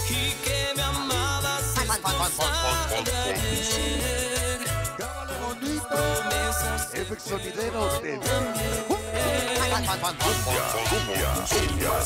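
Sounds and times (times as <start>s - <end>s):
cumbia music with pulsing bass: 0.0s - 12.0s.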